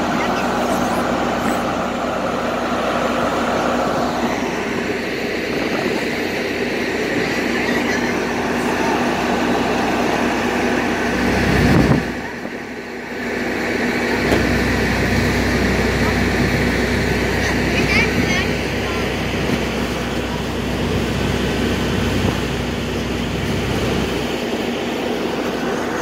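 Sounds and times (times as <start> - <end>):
ferry engine droning: 0.0 - 26.0
wind buffeting microphone: 4.1 - 12.6.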